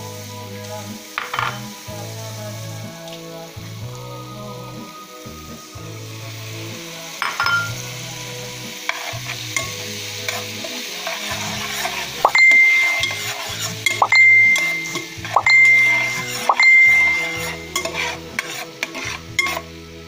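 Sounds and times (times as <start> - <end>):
food sizzling in oil: 0.0 - 20.0
metal spoon scraping a pan: 1.2 - 1.7, 8.6 - 19.8
spoon clinking against pan: 1.2 - 1.7, 7.2 - 7.8, 8.9 - 19.6
high ringing squeals of spoon: 12.2 - 18.5.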